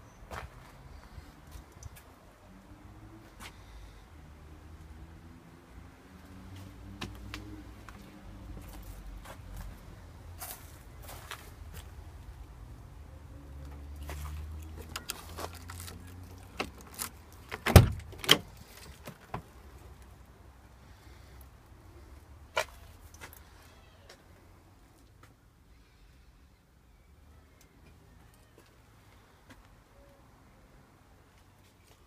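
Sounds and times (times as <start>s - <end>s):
door latch clunk: 17.6s - 18.5s.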